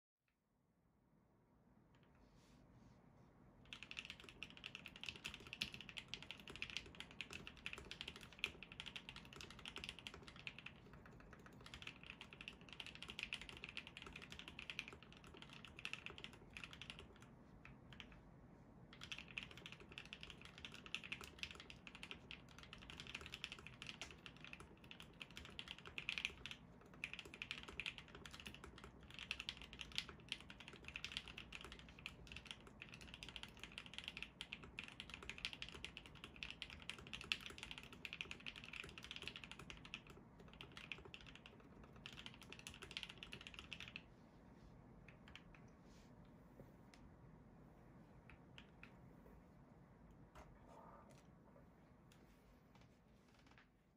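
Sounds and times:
mechanical keyboard typing: 3.7 - 18.2, 18.9 - 44.0.

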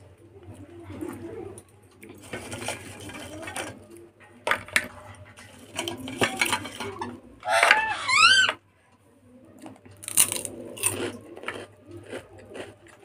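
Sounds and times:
papad clattering in steel bowl: 4.5 - 7.1.

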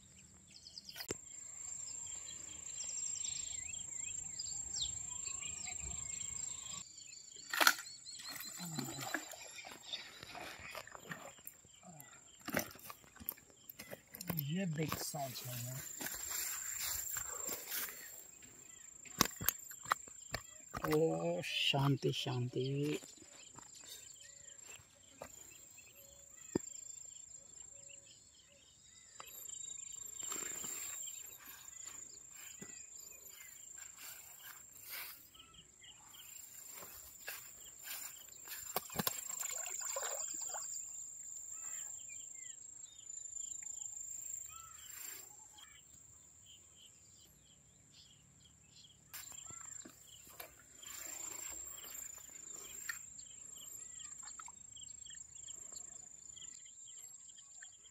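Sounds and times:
bird chirps: 0.0 - 57.9
insects trilling: 1.0 - 46.6, 49.1 - 57.8
rustling grass: 15.3 - 18.1.

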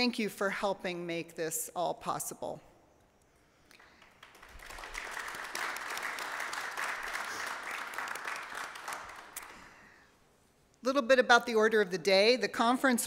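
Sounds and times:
audience applauding: 3.7 - 9.8.

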